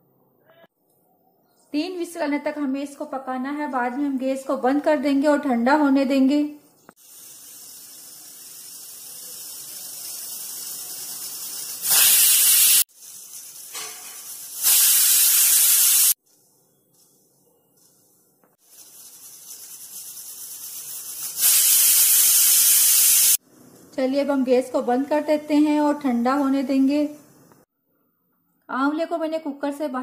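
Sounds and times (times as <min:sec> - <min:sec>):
steam hissing: 0:07.0 - 0:16.2, 0:18.6 - 0:23.4
pressure cooker whistles: 0:07.4 - 0:12.8, 0:20.9 - 0:23.4.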